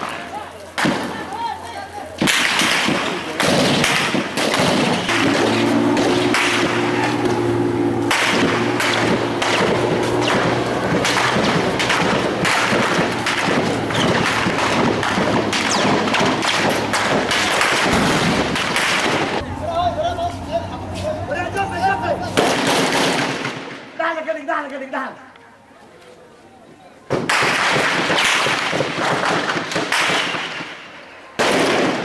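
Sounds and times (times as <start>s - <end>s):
small-arms gunfire: 0.8s - 1.2s, 2.2s - 19.4s, 22.4s - 23.8s, 27.1s - 30.8s, 31.4s - 32.0s.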